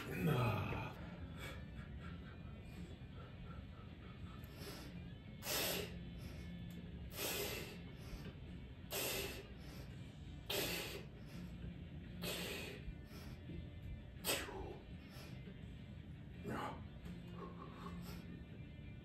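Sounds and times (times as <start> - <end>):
man breathing forcefully: 1.0 - 15.7.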